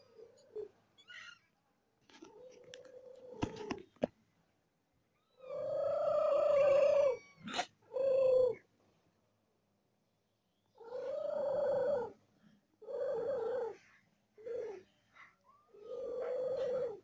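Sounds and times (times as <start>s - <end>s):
cat meowing: 6.4s - 7.7s.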